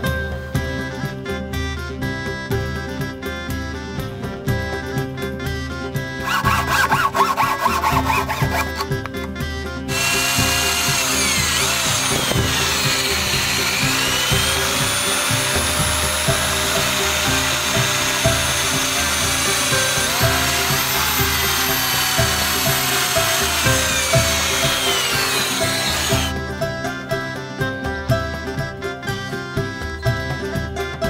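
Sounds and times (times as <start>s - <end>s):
background music with steady beat: 0.0s - 31.0s
electric drill boring into wood: 6.2s - 8.9s, 9.9s - 26.4s.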